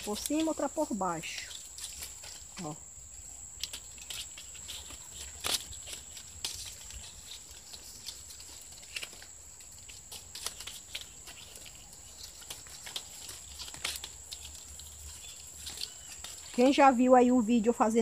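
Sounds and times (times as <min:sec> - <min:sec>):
palm leaf strips rustling: 0:00.0 - 0:18.0.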